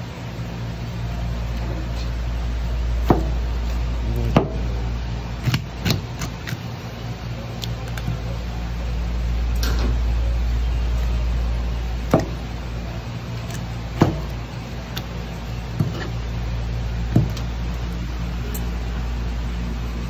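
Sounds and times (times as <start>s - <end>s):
steady low hum: 0.0s - 20.0s
knife chopping through bone: 5.4s - 6.6s, 13.4s - 14.4s.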